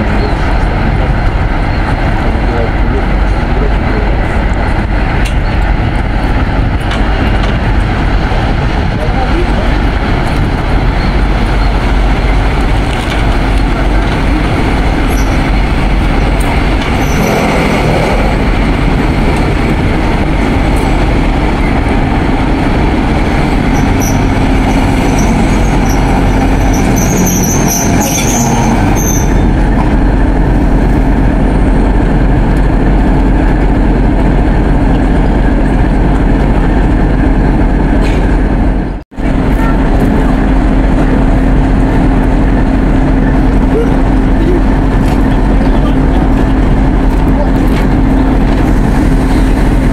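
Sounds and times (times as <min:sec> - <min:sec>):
diesel locomotive engine running: 0:00.0 - 0:49.9
high metallic squeals: 0:23.7 - 0:24.4, 0:25.0 - 0:29.6.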